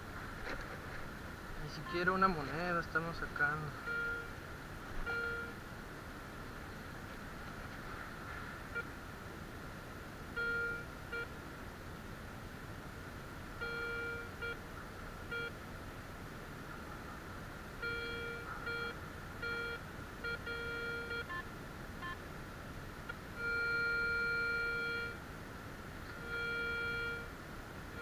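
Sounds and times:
metal detector low beeps: 0:03.8 - 0:04.3, 0:05.0 - 0:05.6, 0:10.4 - 0:11.3, 0:13.6 - 0:14.6, 0:17.8 - 0:21.4, 0:23.4 - 0:25.2, 0:26.2 - 0:27.3.

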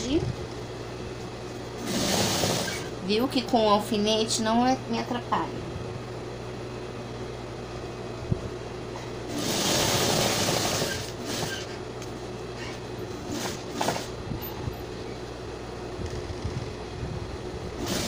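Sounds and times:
low motor hum: 0:00.0 - 0:18.0
sewing machine stitching: 0:01.8 - 0:02.9, 0:09.3 - 0:11.8, 0:13.2 - 0:14.1, 0:17.8 - 0:18.0.

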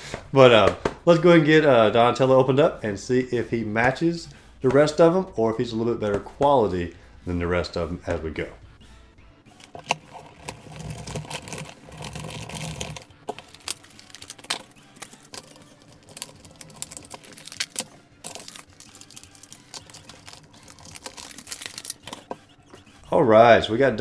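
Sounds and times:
plastic clicks and crackles: 0:09.6 - 0:22.4
stiff plastic rustling: 0:09.6 - 0:22.4.

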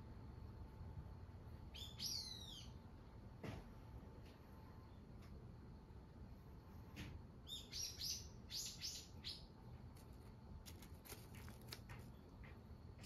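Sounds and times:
bird chirping: 0:01.7 - 0:02.8, 0:07.4 - 0:09.6.

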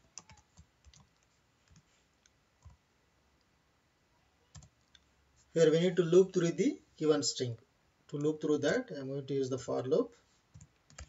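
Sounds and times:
computer keyboard keystrokes: 0:00.1 - 0:01.8, 0:10.6 - 0:11.0.

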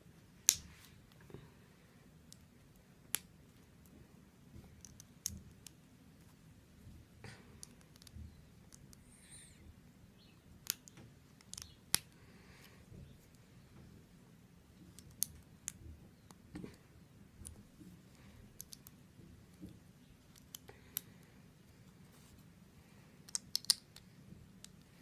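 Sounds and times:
plastic bricks clicking together: 0:18.6 - 0:18.9, 0:23.3 - 0:24.0.

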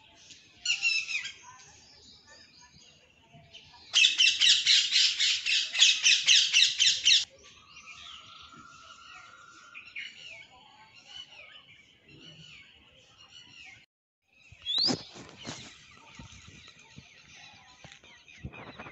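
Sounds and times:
soft bird calls: 0:14.5 - 0:18.9.

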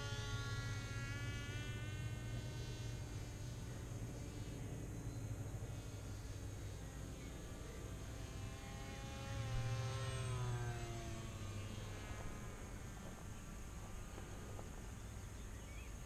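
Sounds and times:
model plane motor whining: 0:00.0 - 0:16.0.

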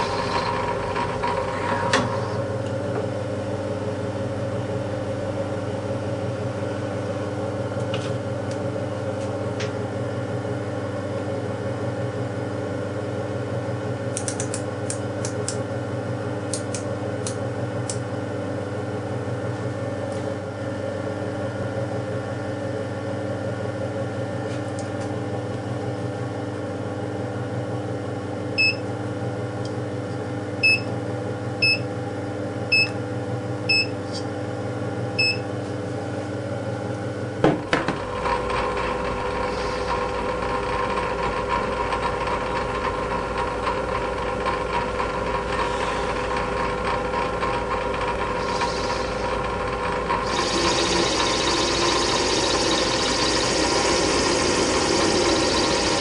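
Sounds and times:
mechanical hum: 0:00.0 - 0:56.0
short electronic keypad beeps: 0:35.2 - 0:35.4.

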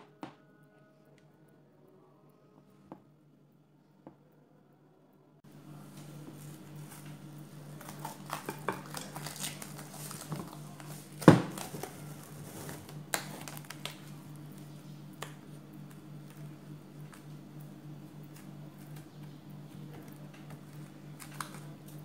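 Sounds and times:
cling film crinkling: 0:06.4 - 0:14.7, 0:20.2 - 0:22.0.

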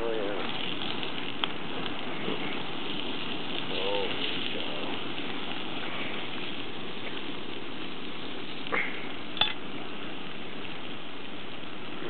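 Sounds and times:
crackling hiss of flames: 0:00.0 - 0:12.0
sharp pops: 0:08.6 - 0:09.7.

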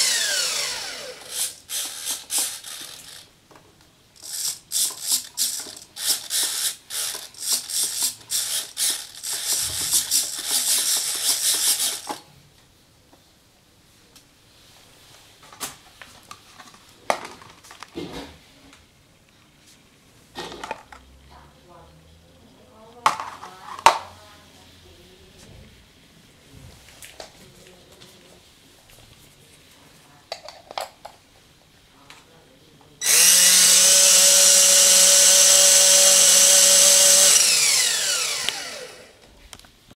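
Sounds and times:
electric motor high whine: 0:00.0 - 0:03.2, 0:33.0 - 0:39.2.

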